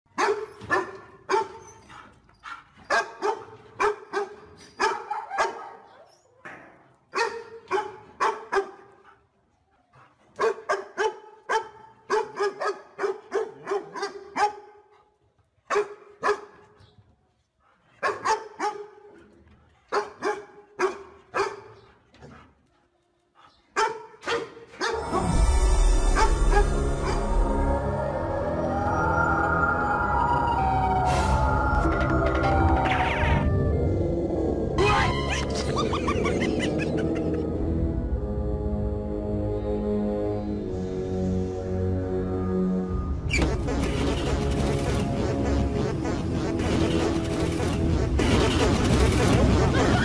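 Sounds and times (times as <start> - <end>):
dog barking: 0.1 - 1.6, 2.4 - 6.1, 7.1 - 9.1, 10.4 - 15.0, 15.7 - 16.6, 18.0 - 19.2, 19.9 - 21.8, 23.8 - 25.0
eerie music with deep rumble: 25.0 - 50.0.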